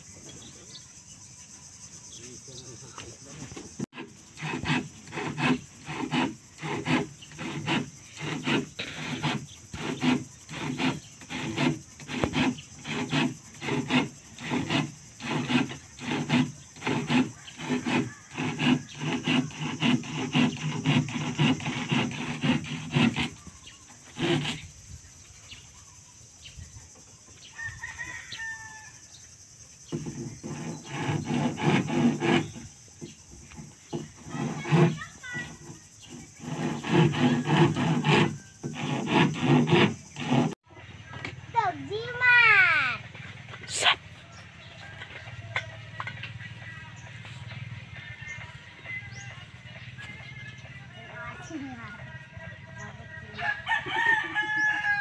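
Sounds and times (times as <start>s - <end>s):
hand tool rasping on wood: 3.4s - 24.8s, 29.9s - 40.6s.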